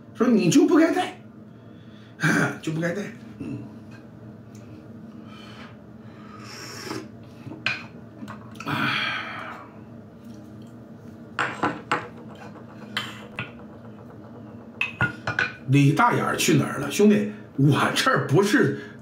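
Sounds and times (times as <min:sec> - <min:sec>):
clay cups clinking: 0:11.4 - 0:15.6.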